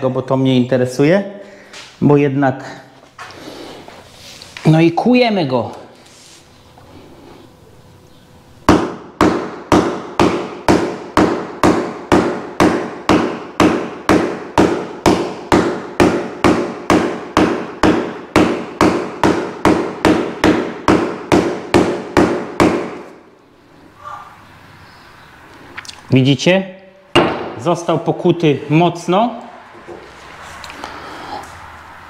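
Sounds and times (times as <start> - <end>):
hammer pounding floor panel: 8.7 - 23.2.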